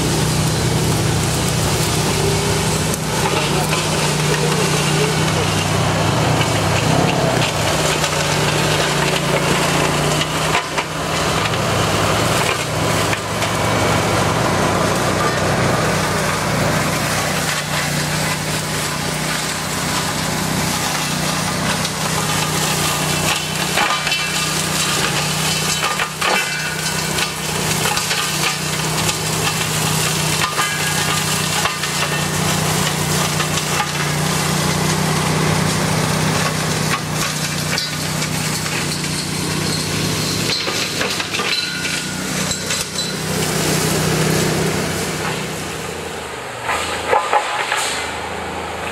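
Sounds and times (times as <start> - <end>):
stems and twigs crackling: 0.0 - 45.9
mower engine droning: 0.0 - 48.9.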